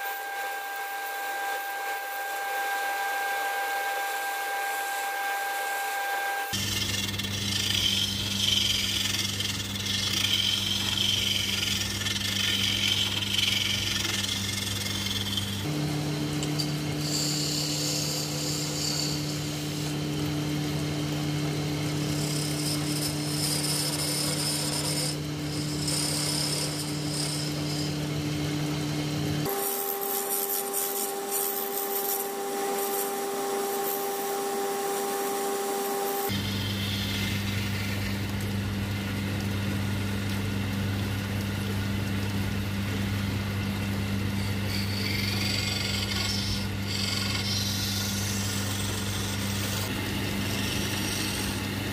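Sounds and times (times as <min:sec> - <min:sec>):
wood lathe motor hum: 0:00.0 - 0:40.3, 0:41.6 - 0:51.9
chisel scraping spinning wood: 0:03.5 - 0:15.7, 0:16.3 - 0:28.2, 0:29.4 - 0:38.4, 0:44.3 - 0:51.9.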